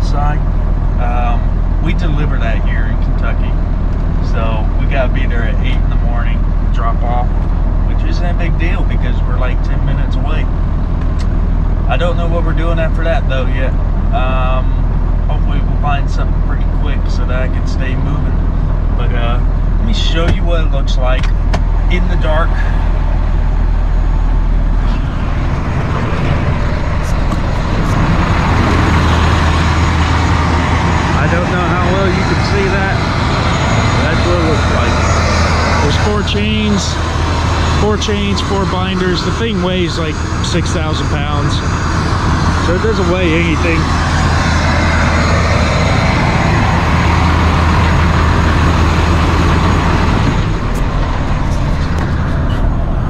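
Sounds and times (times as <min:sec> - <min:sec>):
truck engine idling: 0:00.0 - 0:53.0
broad rushing noise: 0:17.8 - 0:53.0.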